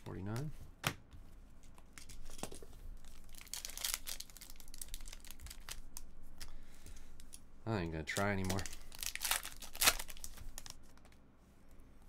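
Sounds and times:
foil wrapper crinkling and tearing: 0:02.0 - 0:06.6, 0:08.1 - 0:11.0.

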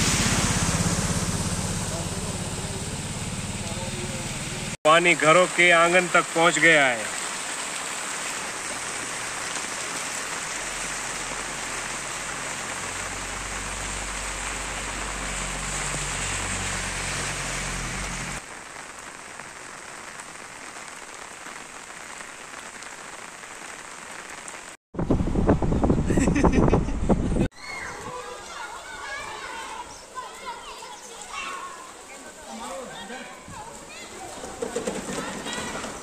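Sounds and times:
passing vehicle engines humming: 0:00.0 - 0:04.8, 0:11.5 - 0:18.4
rain hissing on a wet road: 0:00.0 - 0:24.8, 0:28.2 - 0:36.0.

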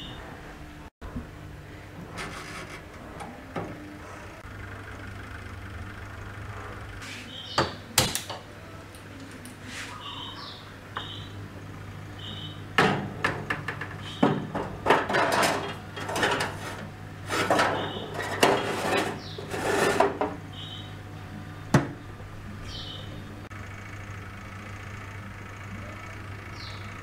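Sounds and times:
metal tray scraping on oven rack: 0:02.1 - 0:03.3, 0:14.0 - 0:20.4
oven door shutting: 0:12.2 - 0:20.8.

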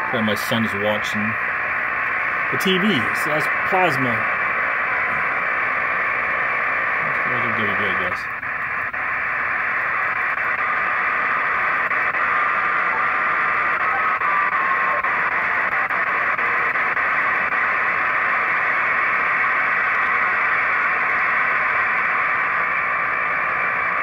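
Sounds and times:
radio static hissing: 0:00.0 - 0:24.0.

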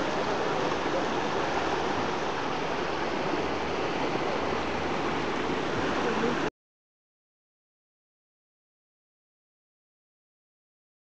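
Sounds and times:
floodwater rushing: 0:00.0 - 0:06.5.

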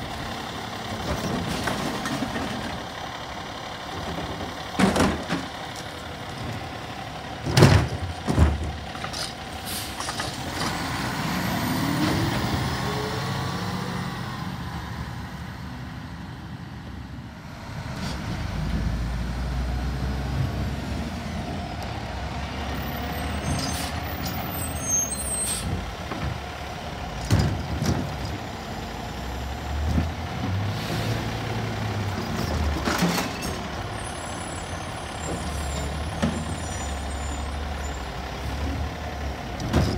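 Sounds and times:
diesel engine revving: 0:00.0 - 0:39.9
cart banging against hopper: 0:04.3 - 0:05.5, 0:07.4 - 0:08.8.

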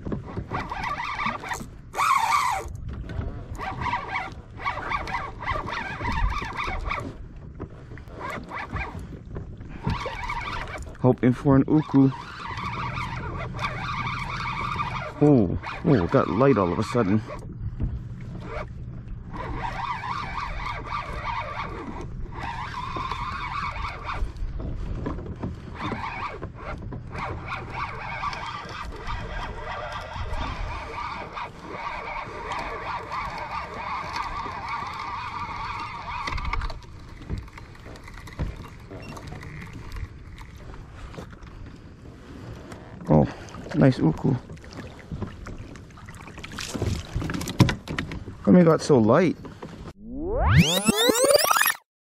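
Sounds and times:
wind rumble on microphone: 0:00.0 - 0:43.0
fishing reel whirring: 0:00.6 - 0:02.8, 0:03.6 - 0:07.1, 0:09.8 - 0:10.9, 0:11.8 - 0:17.3, 0:19.3 - 0:24.4, 0:25.8 - 0:37.1.

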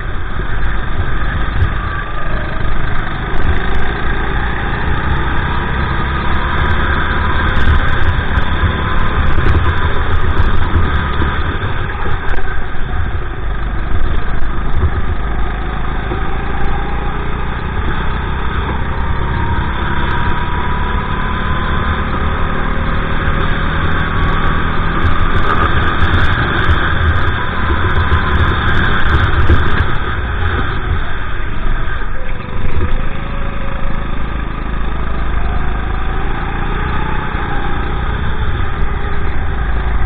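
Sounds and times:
kart engine running hard: 0:00.0 - 0:40.0
wind noise on microphone: 0:00.0 - 0:40.0.

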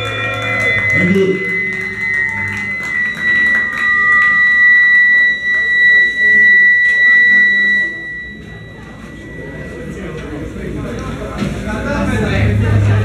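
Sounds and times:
guitar amp feedback squeal: 0:00.0 - 0:11.2
lower feedback tone: 0:00.0 - 0:13.0.

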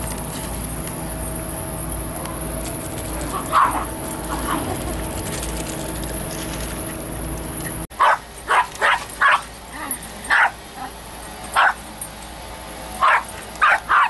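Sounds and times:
dog barking: 0:03.3 - 0:03.9, 0:08.0 - 0:09.4, 0:10.3 - 0:10.6, 0:11.6 - 0:11.8, 0:13.0 - 0:14.0.

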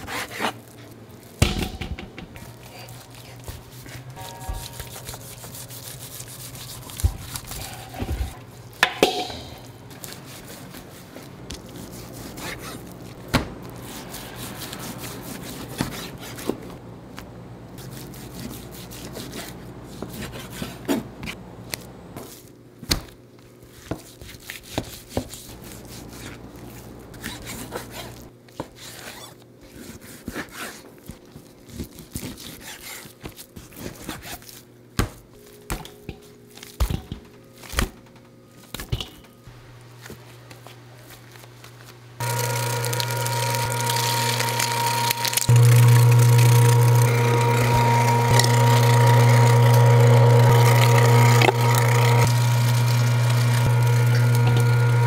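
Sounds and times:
low hum of kitchen equipment: 0:00.0 - 0:55.0
utensils knocking and scraping: 0:01.4 - 0:05.7.

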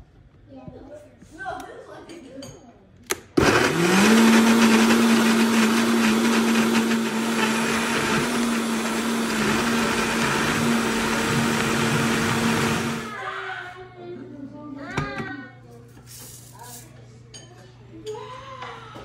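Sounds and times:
blender running: 0:03.4 - 0:13.2.

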